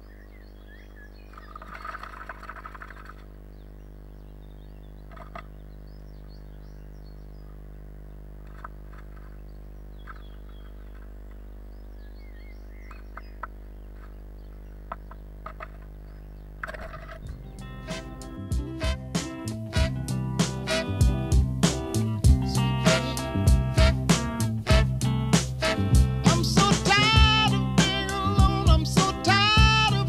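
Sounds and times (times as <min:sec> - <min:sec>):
electrical hum: 0:00.0 - 0:30.0
faint birdsong: 0:00.0 - 0:30.0
bird scratching and tapping wood: 0:01.4 - 0:03.2, 0:14.9 - 0:15.9.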